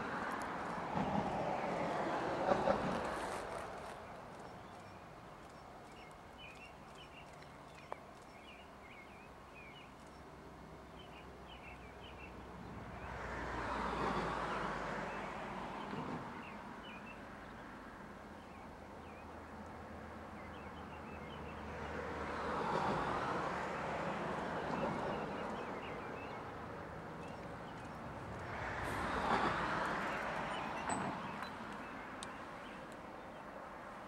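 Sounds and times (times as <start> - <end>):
road vehicle passing: 0.0 - 5.0, 21.2 - 33.2
distant train rumble: 0.0 - 6.4, 24.1 - 32.3
small birds chirping: 3.9 - 10.3.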